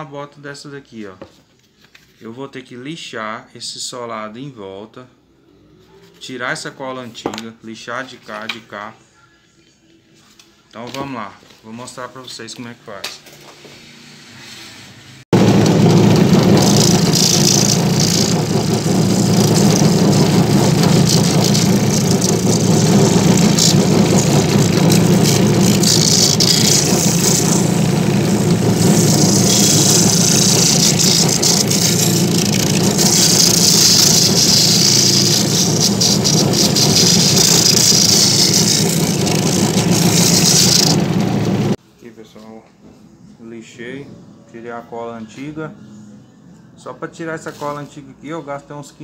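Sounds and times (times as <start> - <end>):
motor humming: 15.4 - 41.8
sanding wheel grinding rubber sole: 15.4 - 41.8.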